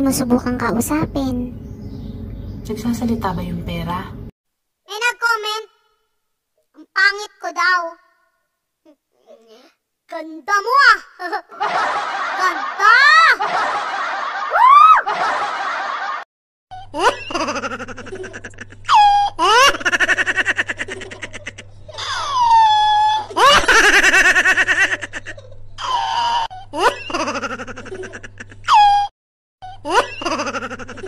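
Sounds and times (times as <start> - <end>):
high-pitched laughter: 11.2 - 31.0.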